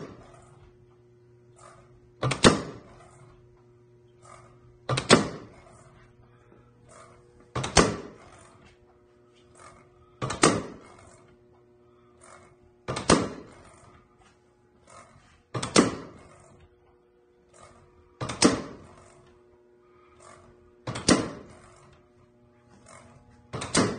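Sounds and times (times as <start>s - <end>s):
steady low hum: 0.0s - 23.9s.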